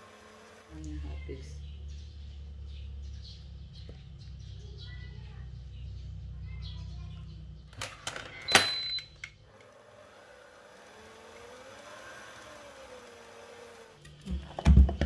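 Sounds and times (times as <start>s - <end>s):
stand mixer running with whine: 0.0s - 0.9s, 9.5s - 14.1s.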